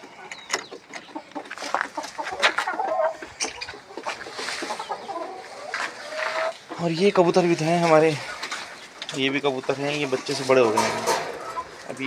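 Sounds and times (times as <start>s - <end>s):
chickens clucking: 0.0s - 12.0s
wire-mesh coop door rattling: 10.3s - 12.0s.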